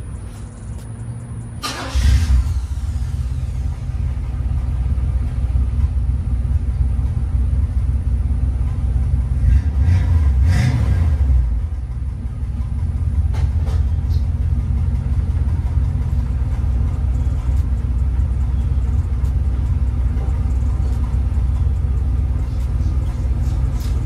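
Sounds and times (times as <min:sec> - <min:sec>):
car engine starting and revving: 0:00.4 - 0:05.9, 0:09.2 - 0:12.1.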